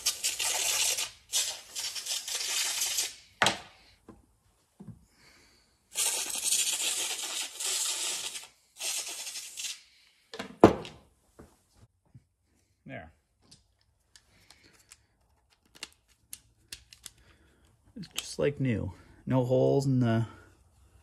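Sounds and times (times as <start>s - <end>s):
aerosol spray hissing: 5.9s - 9.8s.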